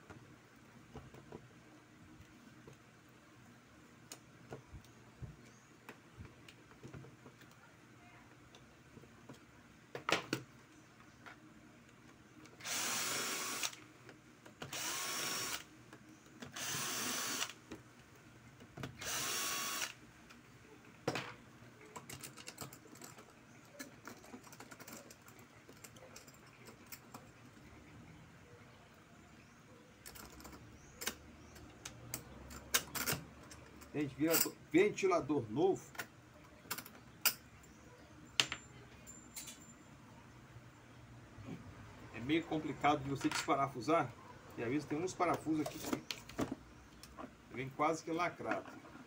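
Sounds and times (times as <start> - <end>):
cordless drill spinning: 12.6 - 13.8, 14.7 - 15.7, 16.5 - 17.6, 19.0 - 20.0.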